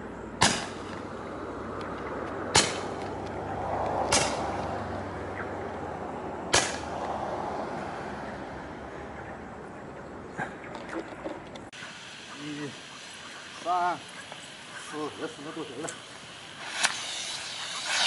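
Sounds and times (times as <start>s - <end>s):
roman candle firing shots: 0.4s - 0.9s, 2.5s - 3.0s, 4.1s - 4.5s.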